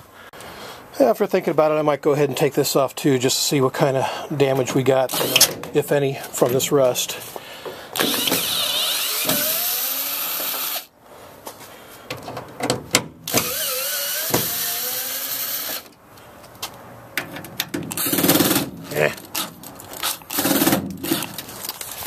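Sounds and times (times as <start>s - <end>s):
cordless drill whining: 8.0s - 10.9s, 13.3s - 15.9s.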